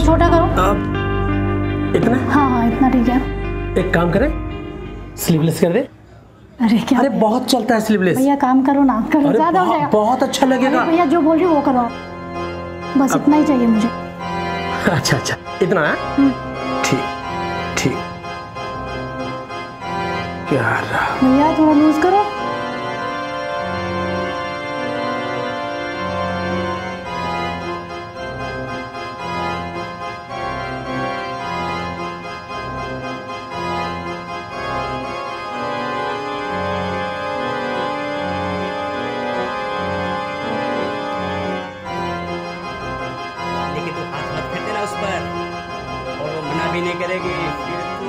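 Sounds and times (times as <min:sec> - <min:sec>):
pulsing low bass note: 0:00.0 - 0:05.4
organ-like chords: 0:00.0 - 0:48.0.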